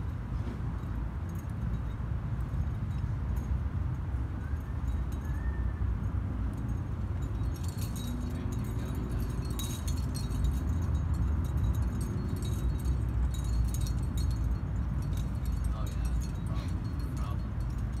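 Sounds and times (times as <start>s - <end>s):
climbing gear jangling and clinking: 0.6s - 18.0s
steady low rumble: 5.9s - 18.0s.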